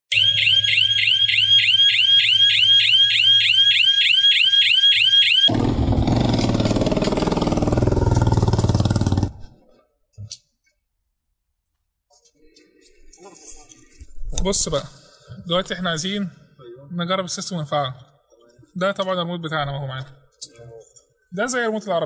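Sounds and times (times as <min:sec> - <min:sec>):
electronic alarm siren whooping: 0:00.1 - 0:06.0.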